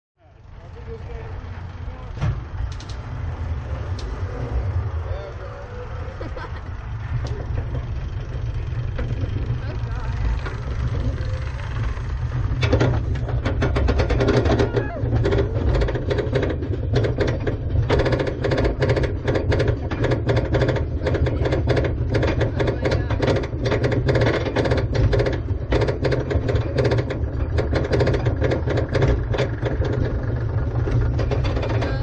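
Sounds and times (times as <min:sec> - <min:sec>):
lift chain rumbling: 0:00.3 - 0:32.0
rapid ratchet clicking: 0:06.8 - 0:32.0.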